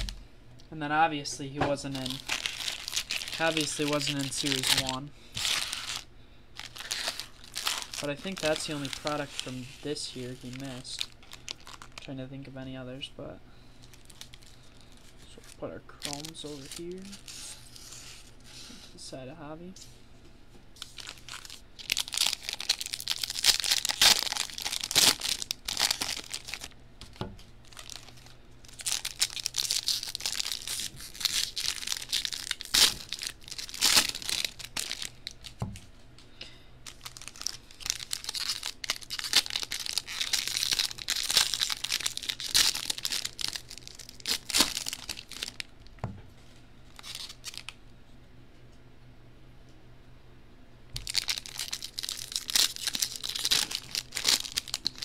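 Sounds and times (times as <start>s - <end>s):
card pack wrappers tearing and crinkling: 1.7s - 12.1s, 13.8s - 18.3s, 20.8s - 35.6s, 36.8s - 45.7s, 46.9s - 47.8s, 51.0s - 55.0s.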